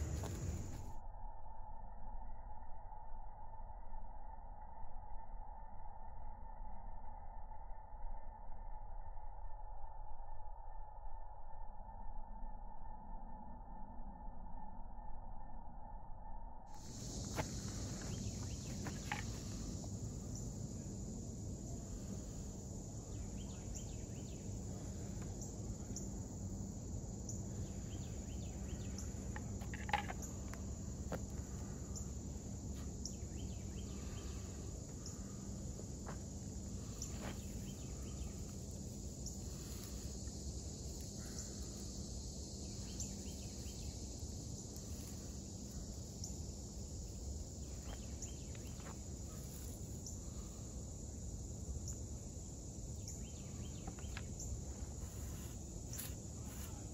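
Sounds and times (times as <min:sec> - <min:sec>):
insect chorus: 0:00.0 - 0:56.9
low background rumble: 0:16.7 - 0:56.9.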